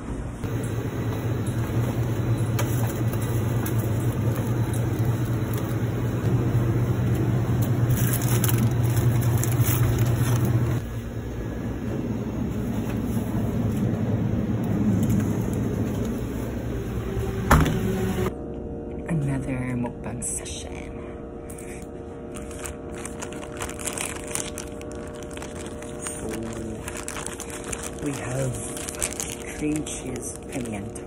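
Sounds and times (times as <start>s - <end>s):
refrigerated coolers humming: 0.0s - 31.0s
plastic packaging crinkling: 7.6s - 10.8s, 22.3s - 31.0s.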